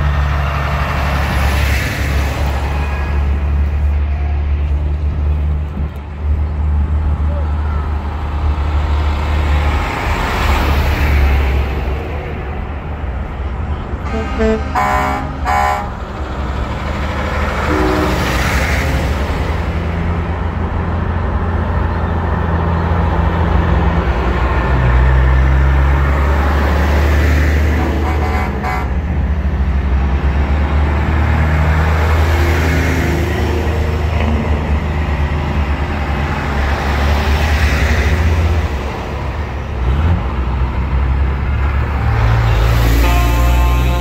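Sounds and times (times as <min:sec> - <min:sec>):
truck diesel engines passing: 0:00.0 - 0:44.0
truck horn: 0:14.0 - 0:16.0, 0:17.6 - 0:18.7, 0:27.7 - 0:29.1, 0:42.5 - 0:44.0.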